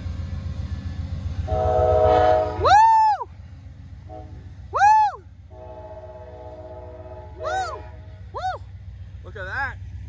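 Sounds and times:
low rumble of train: 0:00.0 - 0:10.0
locomotive air horn chord: 0:01.4 - 0:02.7, 0:04.1 - 0:04.4, 0:05.5 - 0:08.3
high whoops rising and falling: 0:04.7 - 0:05.3.

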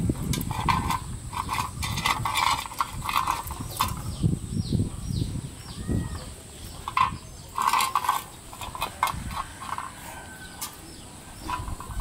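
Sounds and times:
metal bowl clattering: 0:00.3 - 0:04.1, 0:06.8 - 0:12.0.

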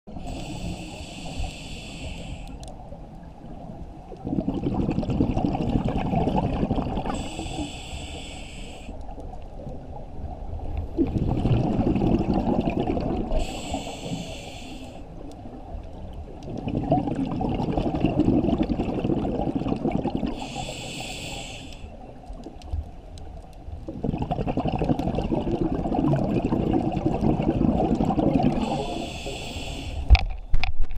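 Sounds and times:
bubbling exhaust underwater: 0:00.1 - 0:22.6, 0:23.3 - 0:30.9
regulator hissing inhale: 0:00.2 - 0:02.7, 0:07.1 - 0:09.0, 0:13.3 - 0:15.1, 0:20.3 - 0:22.0, 0:28.6 - 0:30.2.

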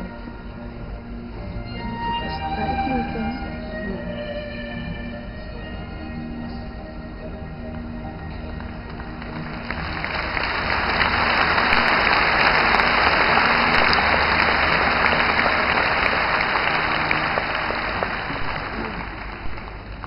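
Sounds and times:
orchestra holding notes: 0:00.0 - 0:20.0
audience applauding: 0:08.6 - 0:20.0.

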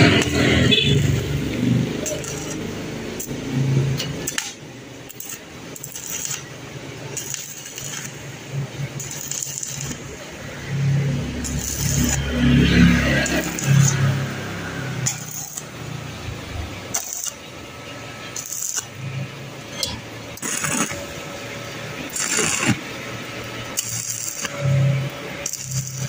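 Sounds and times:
welding rod crackling and sputtering: 0:00.0 - 0:26.0.

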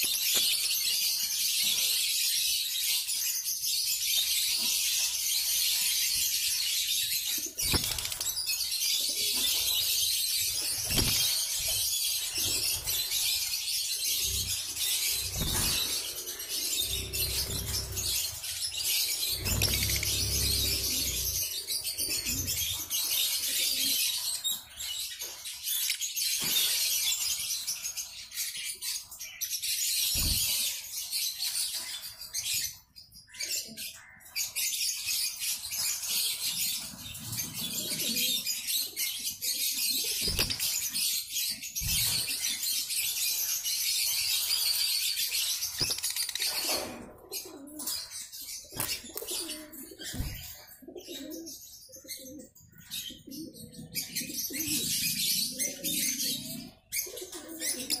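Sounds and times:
birds chirping: 0:00.0 - 0:58.0
wings flapping: 0:10.6 - 0:13.2, 0:14.3 - 0:21.5, 0:40.2 - 0:40.8.

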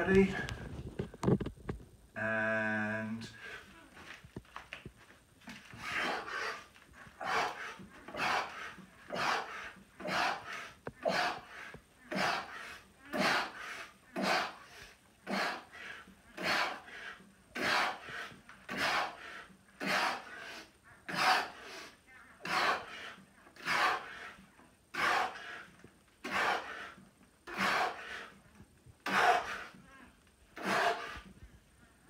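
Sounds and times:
man breathing hard: 0:07.2 - 0:28.4, 0:29.0 - 0:29.8, 0:30.6 - 0:31.4.

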